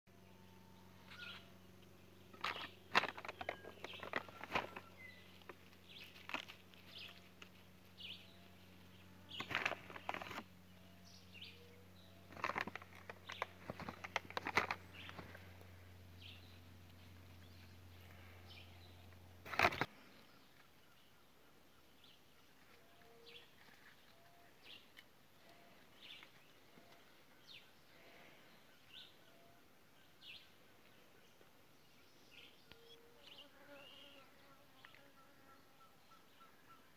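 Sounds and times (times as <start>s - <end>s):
bird chirps: 0.2s - 6.1s
rustling and scraping in soil: 2.2s - 10.9s, 12.0s - 20.7s, 22.4s - 28.4s.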